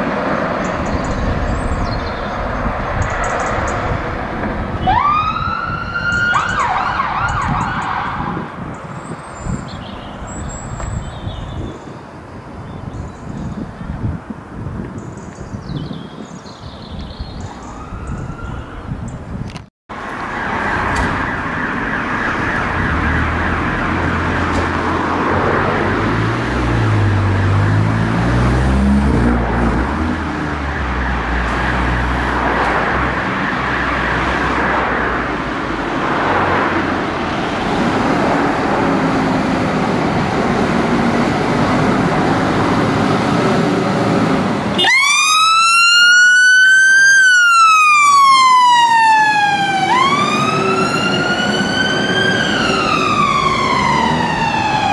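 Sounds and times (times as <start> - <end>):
siren wailing: 4.7 - 8.7, 17.6 - 19.0, 20.2 - 24.5, 33.2 - 34.8, 44.8 - 54.9
diesel engine revving: 20.3 - 44.8, 47.9 - 54.9.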